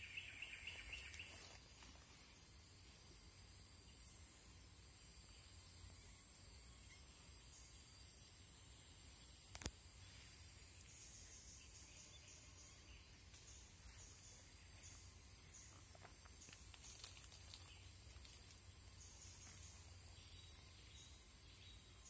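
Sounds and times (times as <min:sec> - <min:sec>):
insect short chirps: 0:00.0 - 0:03.0
insect high-pitched trill: 0:00.0 - 0:22.0.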